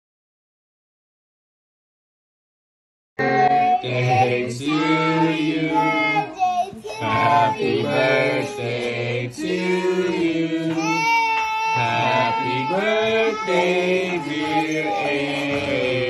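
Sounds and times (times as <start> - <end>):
people singing a melody: 3.2 - 16.0.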